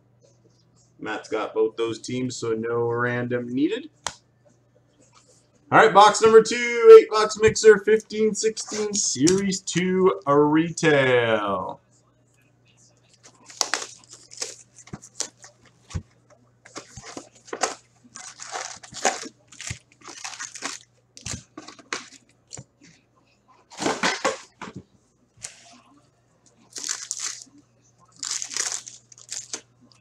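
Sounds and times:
plastic wrap tearing and crumpling: 13.2 - 15.3, 17.0 - 22.1, 26.7 - 27.5, 28.1 - 29.6
foil packs rustling: 13.2 - 15.4, 16.7 - 22.2, 26.7 - 27.5, 28.1 - 29.6.

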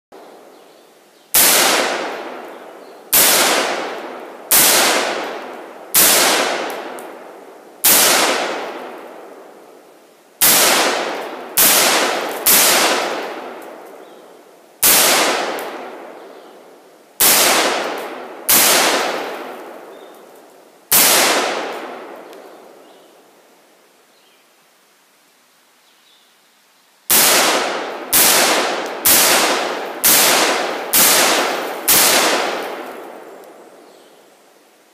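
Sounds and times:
rifle shots: 1.4 - 2.5, 3.1 - 7.1, 7.8 - 9.0, 10.4 - 13.6, 14.8 - 16.1, 17.2 - 19.9, 20.9 - 22.2, 27.1 - 33.3.

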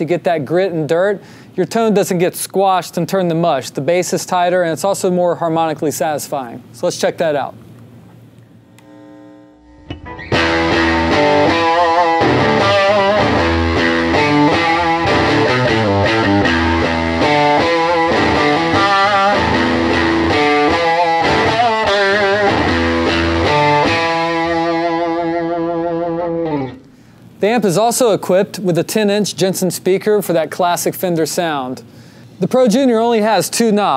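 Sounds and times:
overdriven electric guitar riff: 8.8 - 27.2.

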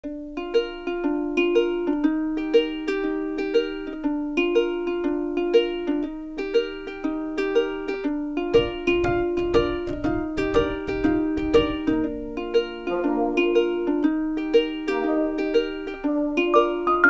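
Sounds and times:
plucked-string melody: 0.0 - 17.0
steady beat: 7.6 - 17.0.

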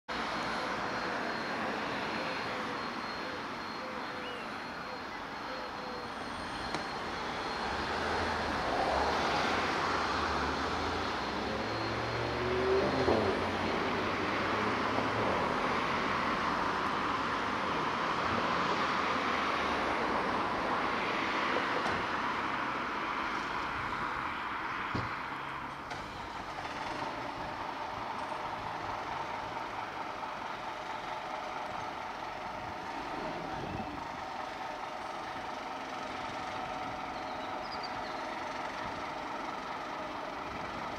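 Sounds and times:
diesel engine idling: 0.2 - 12.2, 25.3 - 40.9
passing road traffic hiss: 0.2 - 40.9.

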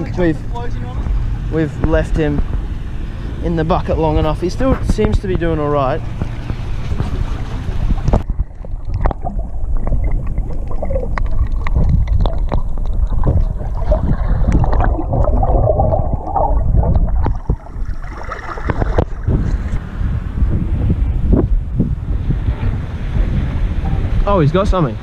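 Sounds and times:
underwater sloshing and gurgling: 0.0 - 24.2
underwater clicks and bubbles: 6.0 - 19.8.

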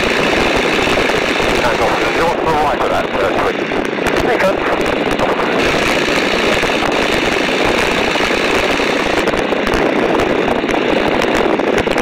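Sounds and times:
aircraft engine running: 0.0 - 12.0
rush of air: 3.5 - 12.0.

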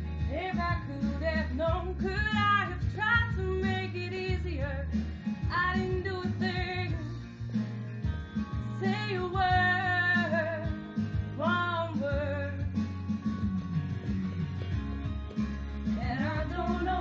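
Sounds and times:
instrumental accompaniment: 4.8 - 17.0
young women singing: 16.0 - 17.0.

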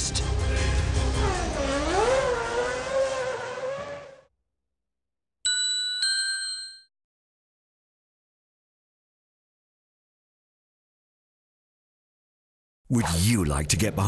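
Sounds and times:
race car engine high revs: 1.1 - 4.2.

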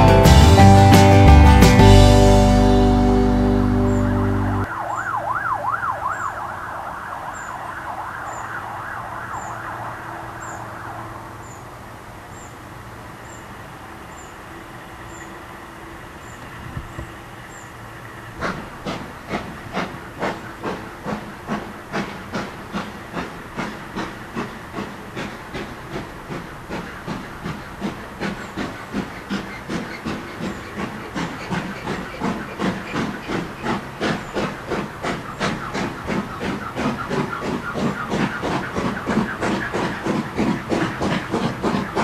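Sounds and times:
steam locomotive chuffing: 0.0 - 4.8, 7.4 - 42.0
steam hissing: 16.0 - 42.0.

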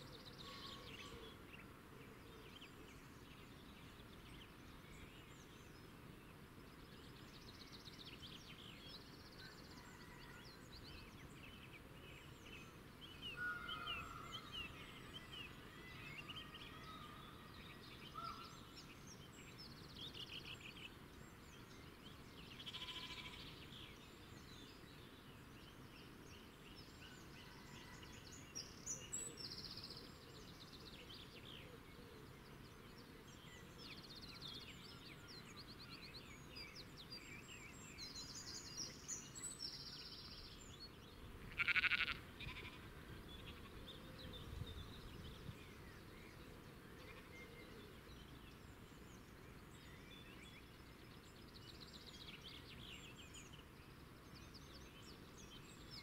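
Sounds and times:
small birds chirping: 10.5 - 56.0
loud animal call: 41.5 - 42.8.

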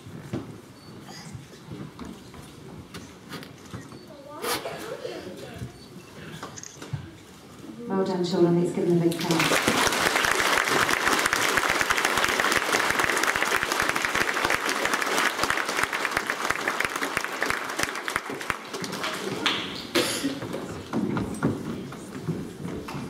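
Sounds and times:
children applauding: 9.1 - 20.0.

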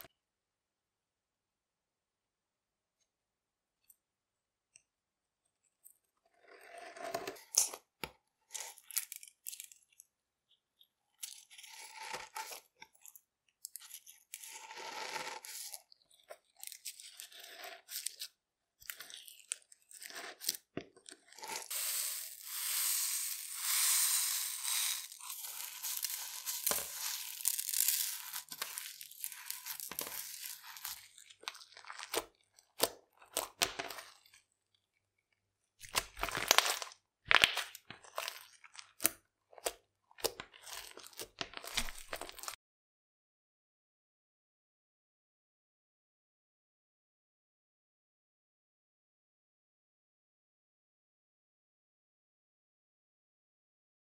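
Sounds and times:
slime crackling and crunching: 21.3 - 34.3, 35.8 - 42.6.

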